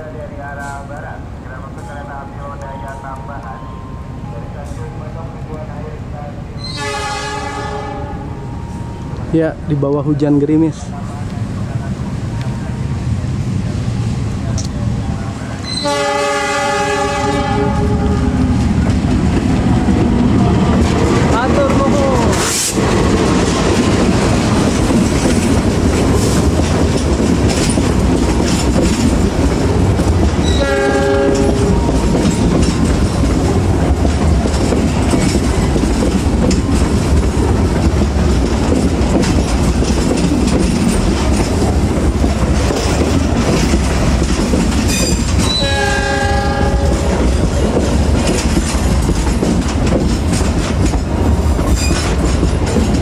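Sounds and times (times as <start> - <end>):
train rolling past with wheel clatter: 0.0 - 53.0
diesel locomotive horn: 6.6 - 8.9, 15.6 - 18.6, 30.4 - 32.2, 45.4 - 47.2.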